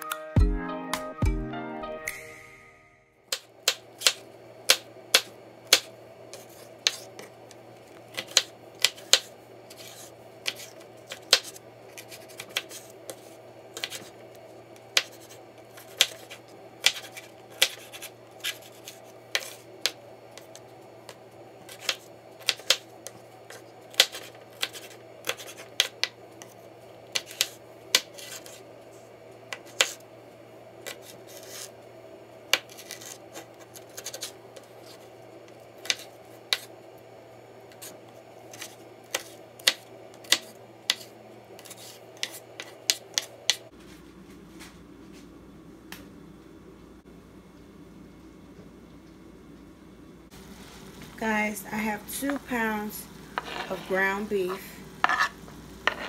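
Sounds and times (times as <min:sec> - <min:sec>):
steady low hum: 0:01.3 - 0:56.0
knife chopping on cutting board: 0:03.3 - 0:05.9, 0:15.0 - 0:20.5, 0:38.5 - 0:43.6.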